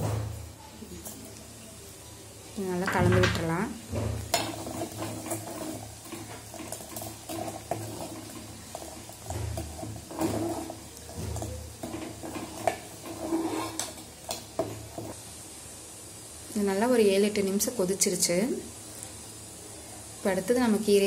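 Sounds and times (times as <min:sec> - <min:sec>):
metal ladle scraping pot: 0:03.1 - 0:15.2
thick gravy stirring: 0:03.9 - 0:15.2.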